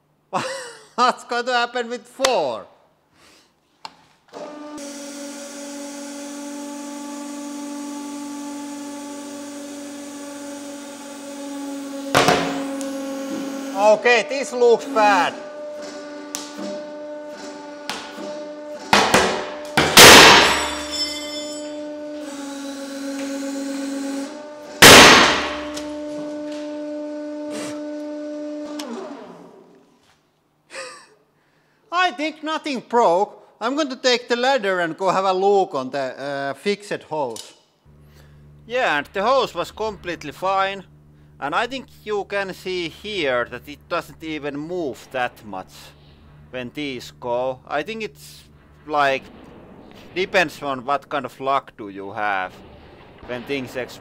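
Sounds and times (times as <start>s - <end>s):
hydraulic press pump motor humming: 4.3s - 21.0s, 21.8s - 29.9s, 37.9s - 49.2s
books bursting with loud crack: 18.9s - 20.9s, 24.8s - 26.2s.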